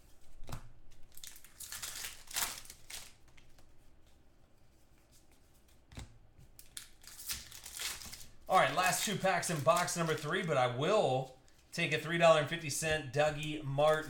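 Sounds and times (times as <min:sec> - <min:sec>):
foil wrappers crinkling and tearing: 0:01.0 - 0:03.6, 0:06.6 - 0:11.7, 0:13.4 - 0:14.0.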